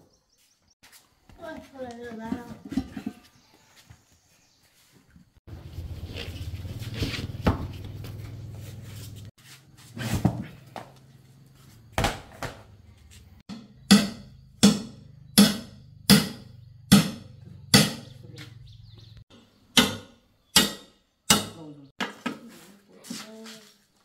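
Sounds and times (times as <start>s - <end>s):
heavy ringing knocks: 13.5s - 18.1s.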